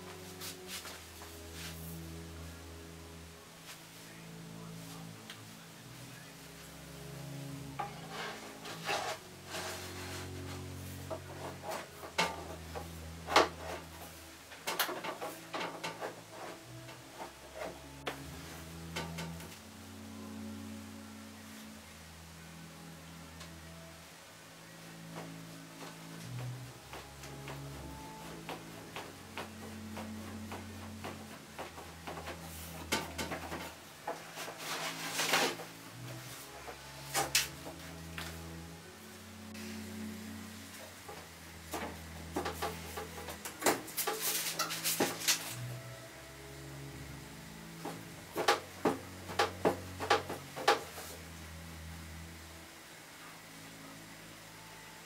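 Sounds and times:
low steady hum: 0:00.0 - 0:55.0
wire hanger scraping metal drum: 0:07.8 - 0:19.6, 0:28.2 - 0:38.4, 0:40.7 - 0:45.8
metallic clinks and scraping: 0:42.5 - 0:45.6.

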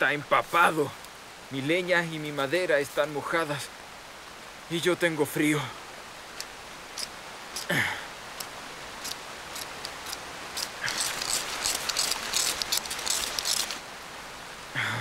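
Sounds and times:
steady rain hiss: 0:00.0 - 0:15.0
ferro rod scraping: 0:06.4 - 0:07.7, 0:09.0 - 0:13.8.

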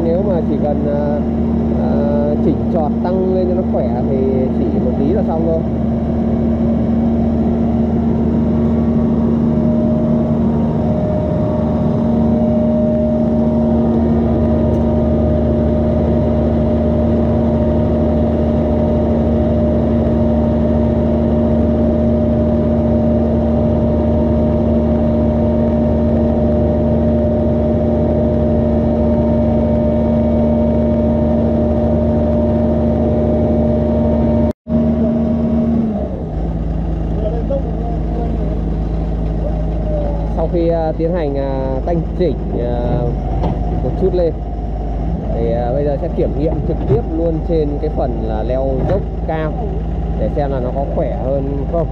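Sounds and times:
excavator engine running: 0:00.0 - 0:51.9.

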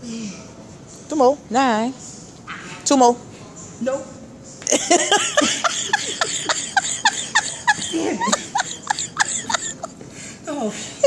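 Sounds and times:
high-pitched laughter: 0:04.7 - 0:09.9.

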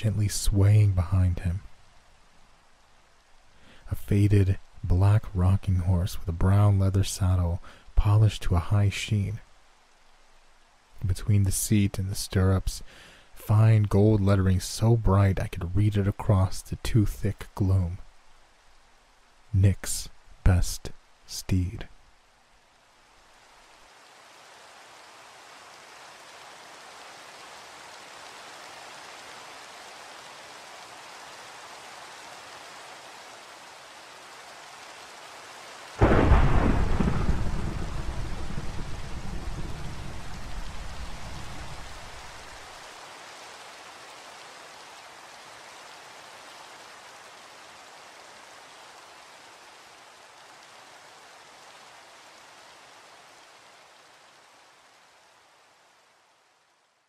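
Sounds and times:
steady rain: 0:00.0 - 0:57.0
thunderclap with low rumble: 0:36.0 - 0:42.2.

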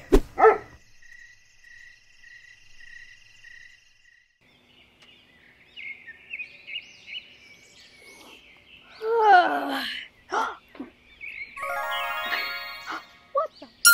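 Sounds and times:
insects chirping: 0:00.0 - 0:04.5
birds chirping: 0:00.3 - 0:13.9.

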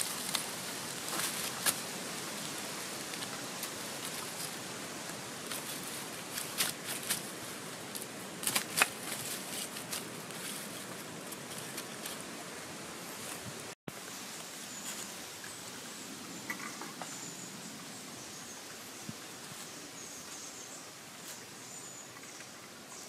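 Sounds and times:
faint steady hiss: 0:00.0 - 0:23.0.

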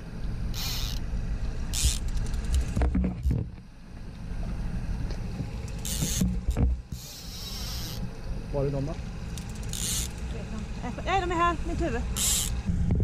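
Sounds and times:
boat engine running: 0:00.0 - 0:13.0
fishing reel clicking: 0:00.5 - 0:01.0, 0:01.7 - 0:02.7, 0:05.7 - 0:06.2, 0:07.0 - 0:08.0, 0:09.3 - 0:10.3, 0:12.2 - 0:12.6.

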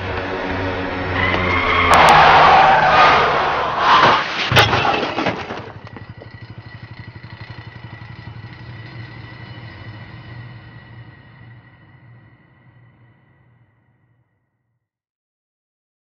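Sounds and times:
car tyres skidding: 0:00.0 - 0:06.6
sharp crash impact: 0:03.6 - 0:05.8.

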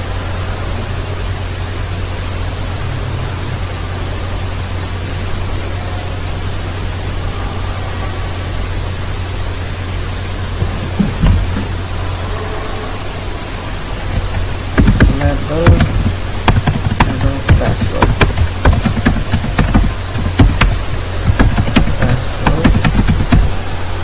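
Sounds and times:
low steady hum: 0:00.0 - 0:24.0
steady microphone hiss: 0:00.0 - 0:24.0
short low thumps: 0:14.1 - 0:23.6.

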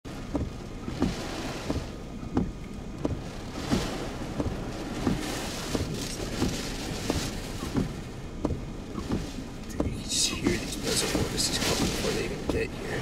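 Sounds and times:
wind and heavy rain rushing: 0:00.1 - 0:13.0
thumps against vehicle body: 0:00.2 - 0:12.7.

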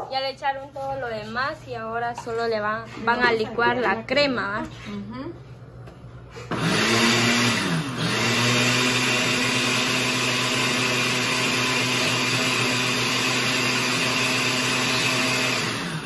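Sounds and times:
electric blender whirring: 0:06.4 - 0:16.0.

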